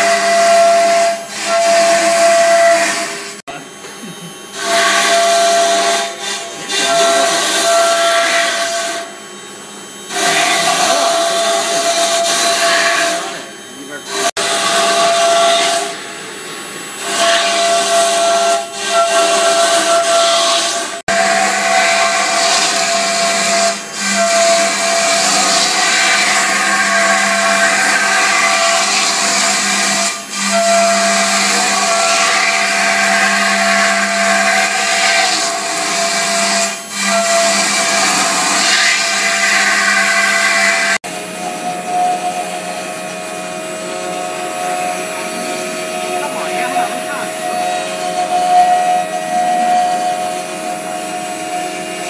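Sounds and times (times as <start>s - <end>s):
router spindle whining: 0.0s - 52.0s.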